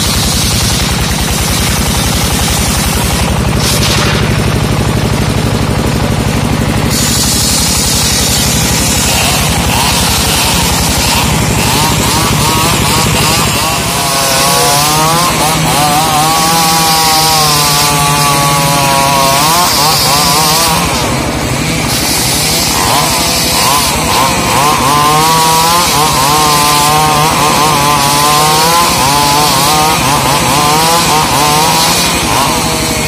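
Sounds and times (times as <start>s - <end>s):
chainsaw cutting wood: 0.0s - 33.0s.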